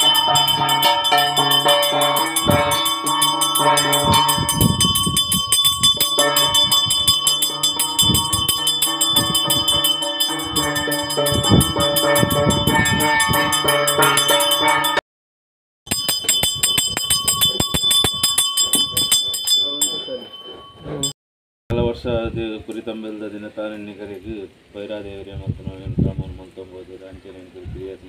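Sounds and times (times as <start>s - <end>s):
handheld bell ringing: 0.0s - 15.0s, 15.9s - 21.2s.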